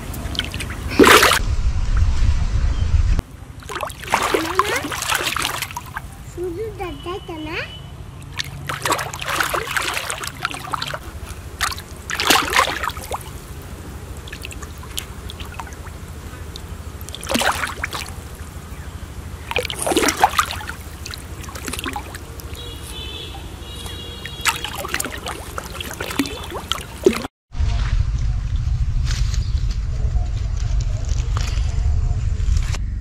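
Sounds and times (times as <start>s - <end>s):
fish splashing in water: 0.0s - 1.4s, 3.6s - 6.3s, 8.2s - 27.3s
water trickling and lapping: 0.0s - 1.4s, 3.5s - 7.4s, 8.1s - 27.3s.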